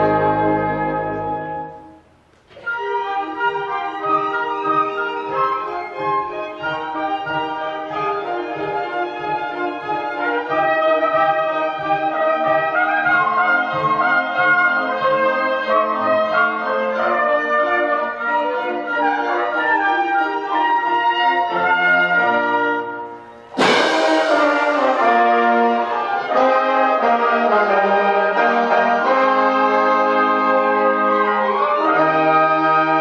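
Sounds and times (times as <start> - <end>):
orchestra playing held chords: 0.0 - 33.0
cymbal crash: 23.4 - 26.2.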